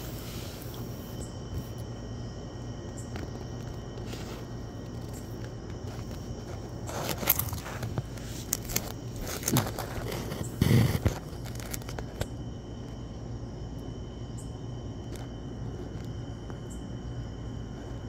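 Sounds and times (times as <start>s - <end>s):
phone handling scrapes and knocks: 6.9s - 12.2s.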